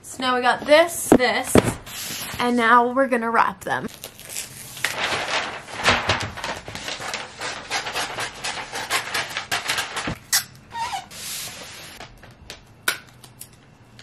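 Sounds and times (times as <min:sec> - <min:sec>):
wrapping paper rustling: 0:03.9 - 0:10.2.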